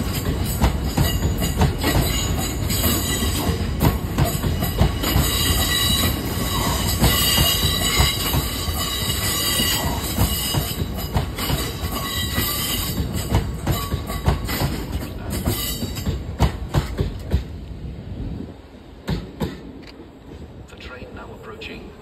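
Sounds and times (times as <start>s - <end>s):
wheels clunking over rail joints: 0.0s - 17.9s
freight train rolling past: 0.0s - 22.0s.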